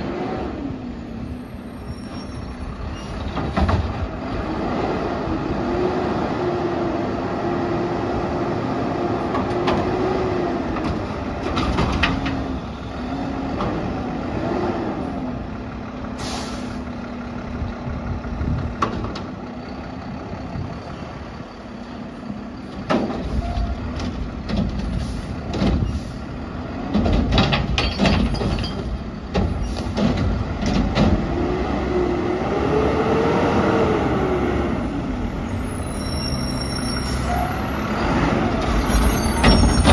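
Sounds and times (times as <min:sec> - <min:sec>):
garbage truck engine drone: 0:00.0 - 0:39.9
loud metal clanks and bangs: 0:26.9 - 0:31.3.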